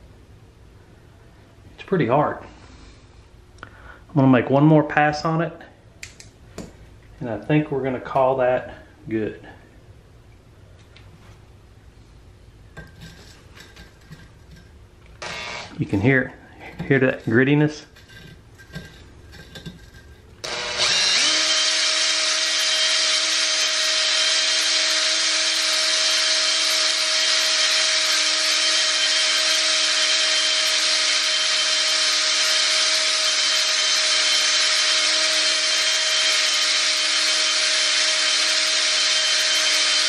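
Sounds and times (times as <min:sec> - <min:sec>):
gritty grinding on metal: 0:12.8 - 0:40.0
electric drill running: 0:15.2 - 0:15.8, 0:18.0 - 0:40.0.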